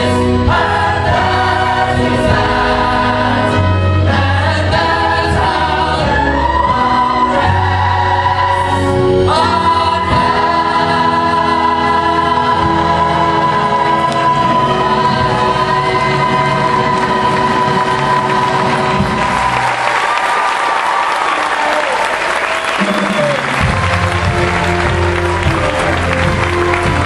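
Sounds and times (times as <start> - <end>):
chorus singing with accompaniment: 0.0 - 20.1.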